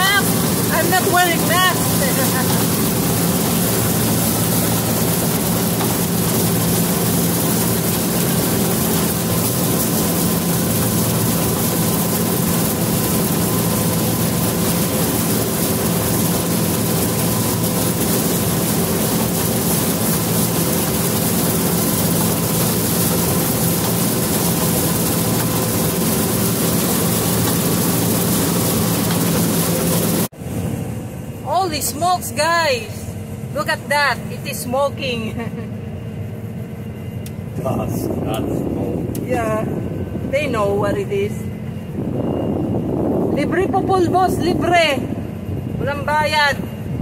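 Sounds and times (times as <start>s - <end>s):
combine harvester drone: 0.0s - 47.0s.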